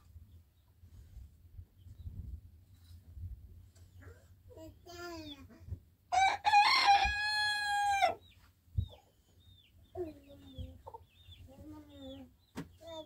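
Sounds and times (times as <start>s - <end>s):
rooster crowing: 6.1s - 8.2s.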